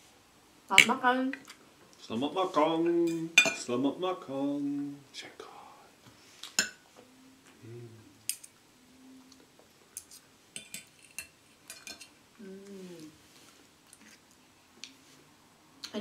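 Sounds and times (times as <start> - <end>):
low voice humming: 7.0 - 8.2, 12.4 - 13.2.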